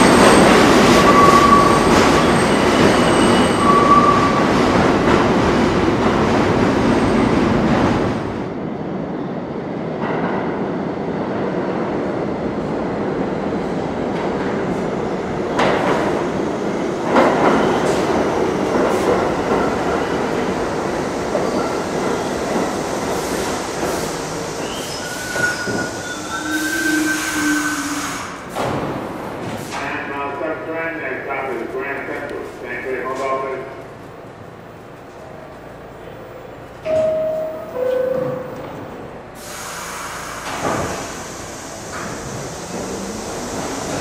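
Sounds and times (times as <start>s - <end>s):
subway train rumbling: 0.0s - 44.0s
wheel squeals: 24.6s - 28.2s.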